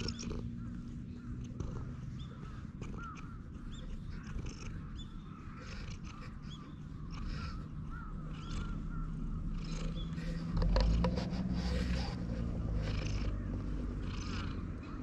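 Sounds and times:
birds chirping: 0:00.0 - 0:15.0
cat purring: 0:00.0 - 0:15.0.

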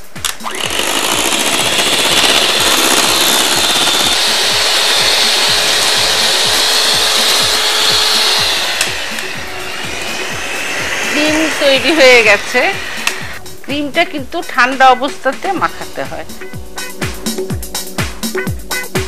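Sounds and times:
electric hand mixer whirring: 0:00.0 - 0:13.4.

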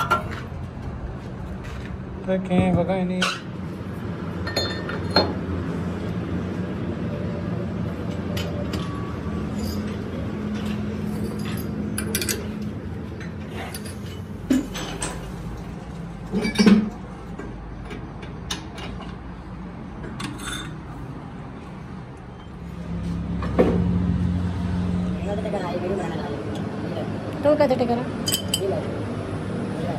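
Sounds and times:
metal tools clinking: 0:08.3 - 0:10.0, 0:10.6 - 0:12.5, 0:20.2 - 0:20.8, 0:28.2 - 0:28.8.

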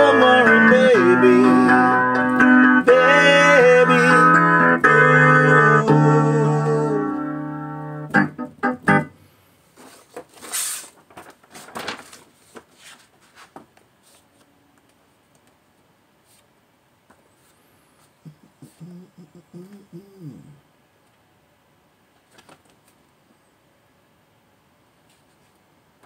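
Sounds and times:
piano chords: 0:00.0 - 0:09.2
paper pages turning: 0:09.8 - 0:14.5, 0:22.3 - 0:23.0.

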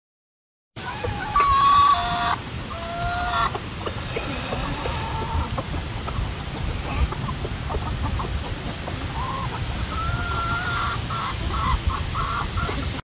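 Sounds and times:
hens clucking: 0:00.8 - 0:13.0
steady low rumble: 0:03.5 - 0:10.2.

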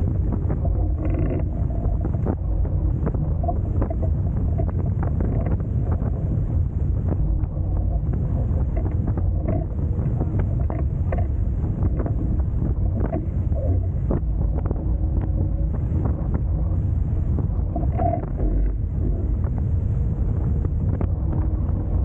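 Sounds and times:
water rushing past hulls: 0:00.0 - 0:22.0
wind buffeting microphone: 0:00.0 - 0:22.0.

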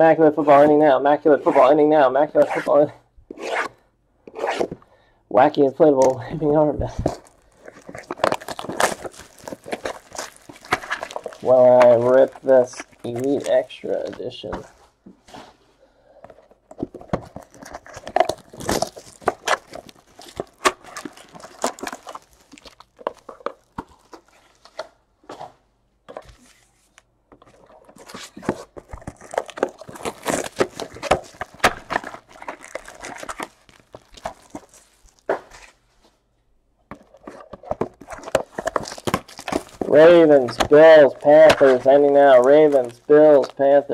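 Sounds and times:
plastic shrink wrap crinkling: 0:06.1 - 0:14.9, 0:16.8 - 0:24.8, 0:26.4 - 0:35.8, 0:37.0 - 0:43.9
cardboard boxes handled: 0:06.5 - 0:15.6, 0:16.3 - 0:35.8, 0:36.9 - 0:43.9.

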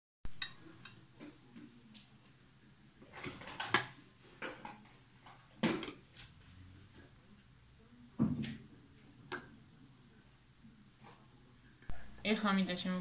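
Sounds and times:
clinks and knocks of dishes: 0:03.1 - 0:04.9.

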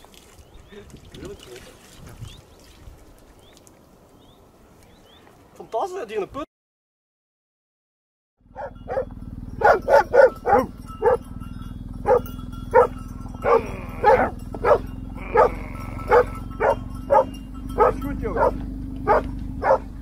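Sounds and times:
dog barking: 0:08.5 - 0:11.3, 0:12.0 - 0:20.0
low drone: 0:08.6 - 0:20.0.

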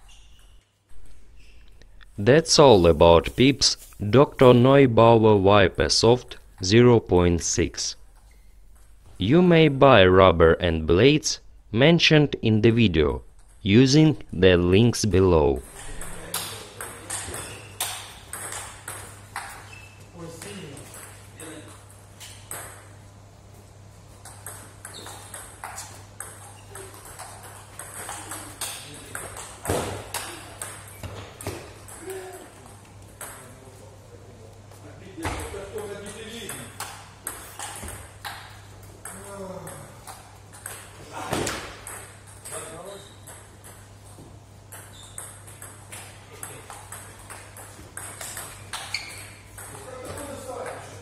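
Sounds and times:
steady low hum: 0:00.9 - 0:19.4
table tennis balls clicking: 0:15.6 - 0:19.7, 0:24.2 - 0:33.5, 0:36.0 - 0:51.0.

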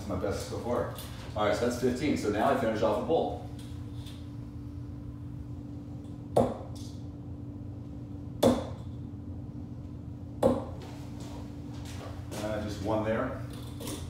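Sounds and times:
steady low hum: 0:00.0 - 0:14.0
darts striking dartboard: 0:06.4 - 0:06.8, 0:08.4 - 0:08.8, 0:10.4 - 0:10.8.

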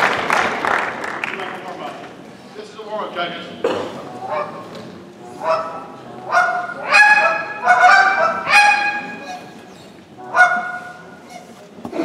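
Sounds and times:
goose call honks and clucks: 0:04.1 - 0:09.6, 0:10.2 - 0:11.5.

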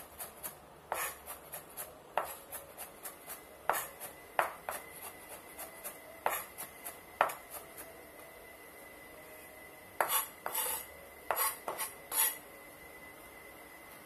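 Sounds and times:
knife chopping on wooden board: 0:00.2 - 0:07.8, 0:10.0 - 0:12.4.

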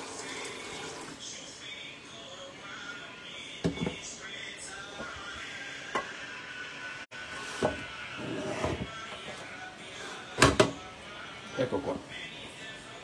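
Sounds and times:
faint background music: 0:00.0 - 0:13.0.

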